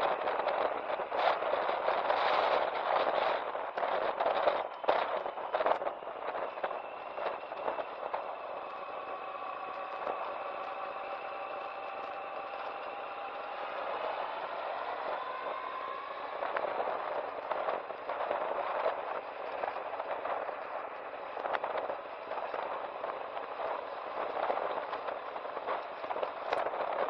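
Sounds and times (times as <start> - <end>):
wind rushing on microphone: 0.0 - 27.0
motorcycle engine: 6.4 - 27.0.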